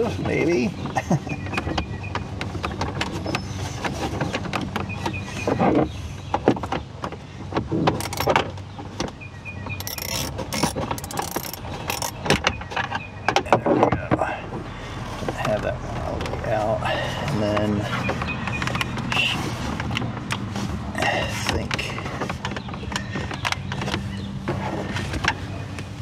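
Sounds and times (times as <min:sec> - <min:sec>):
plastic trim creaking and snapping: 0:01.4 - 0:09.2, 0:09.8 - 0:14.2.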